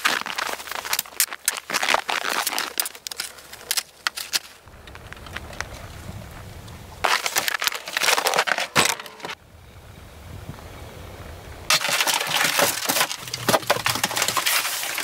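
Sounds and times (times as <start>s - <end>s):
footsteps crunching on snow: 0.0s - 9.4s.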